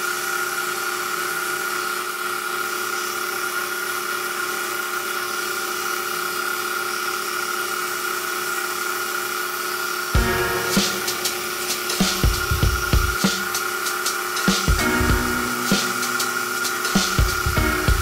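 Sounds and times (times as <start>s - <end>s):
sandpaper sanding wood: 10.7s - 18.0s.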